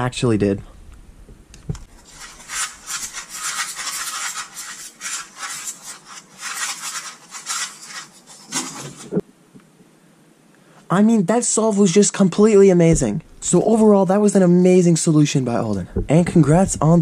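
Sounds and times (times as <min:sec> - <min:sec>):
puzzle cube clicking and scraping: 0:01.9 - 0:09.2.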